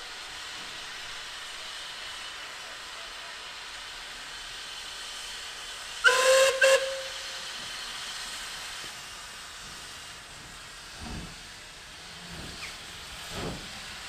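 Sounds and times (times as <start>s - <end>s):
steam locomotive whistle blasts: 6.0s - 7.6s.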